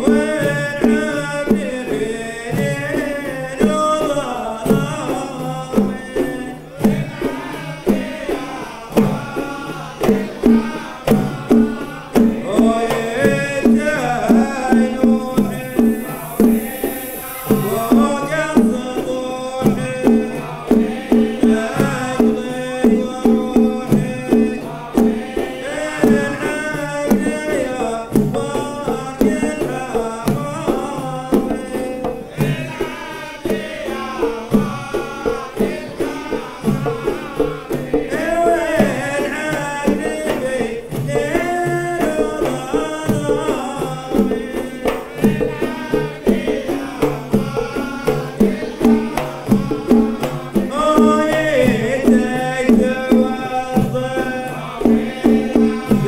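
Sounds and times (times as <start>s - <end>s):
frame drums beating: 0.0s - 56.0s
men's chorus singing: 0.0s - 56.0s
smoke jets hissing: 14.3s - 18.4s.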